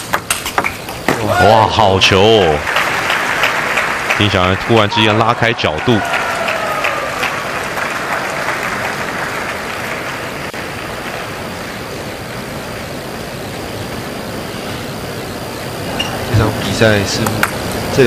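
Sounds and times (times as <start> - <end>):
crowd applauding: 1.2 - 12.0.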